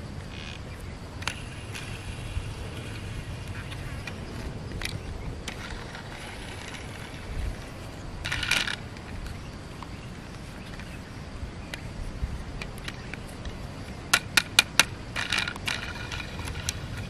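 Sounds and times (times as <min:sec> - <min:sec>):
low outdoor rumble: 0:00.0 - 0:17.0
plastic toy clicks: 0:08.2 - 0:08.8, 0:14.2 - 0:16.8
plastic toy rattle: 0:08.2 - 0:08.8, 0:14.2 - 0:17.0.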